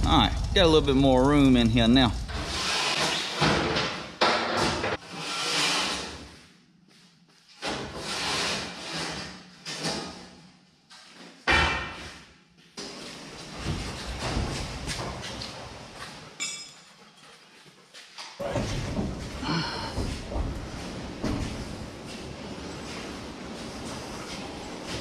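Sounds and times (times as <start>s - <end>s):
race cars rolling and scraping: 20.5s - 25.0s.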